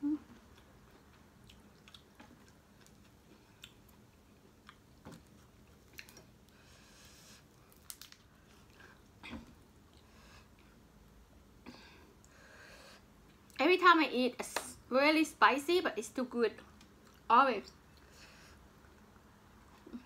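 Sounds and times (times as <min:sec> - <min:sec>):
chewing and mouth sounds: 0:00.3 - 0:06.6.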